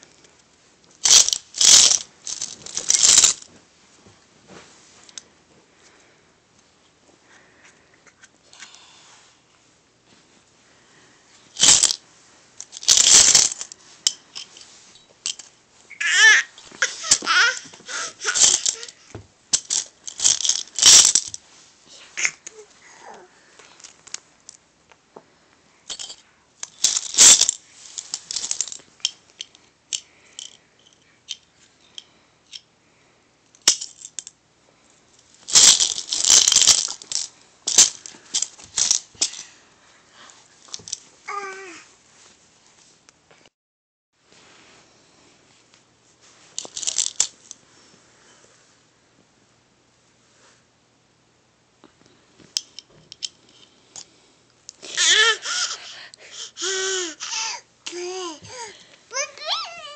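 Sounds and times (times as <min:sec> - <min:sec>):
coins rattling in a coin bank: 0:19.6 - 0:21.4, 0:35.5 - 0:39.4
child vocal sound: 0:22.0 - 0:23.4, 0:41.3 - 0:41.9, 0:54.8 - 0:59.9.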